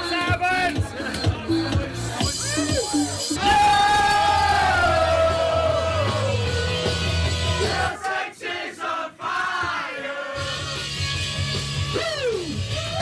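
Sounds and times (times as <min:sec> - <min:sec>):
dance music over speaker: 0:00.0 - 0:03.4
crowd singing and shouting: 0:04.4 - 0:10.8.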